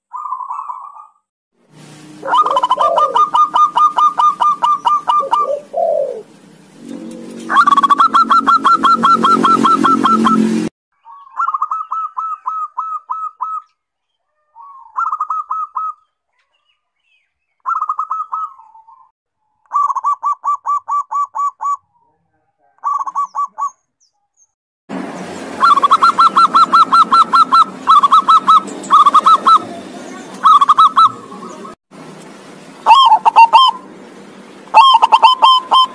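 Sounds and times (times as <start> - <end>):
doves cooing: 2.2 - 10.4, 25.6 - 31.7, 32.9 - 33.9, 34.7 - 35.9.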